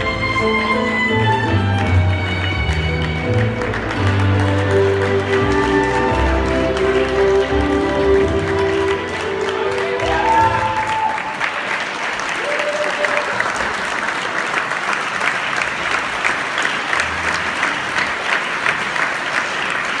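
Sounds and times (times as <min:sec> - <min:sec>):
ballroom dance music: 0:00.0 - 0:11.1
audience applauding: 0:00.0 - 0:20.0.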